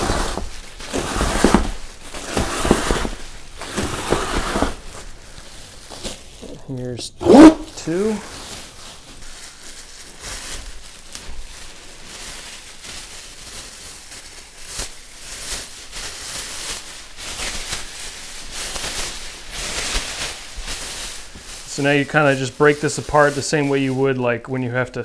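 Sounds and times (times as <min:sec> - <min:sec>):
plastic sheeting crinkling: 0:00.0 - 0:25.0.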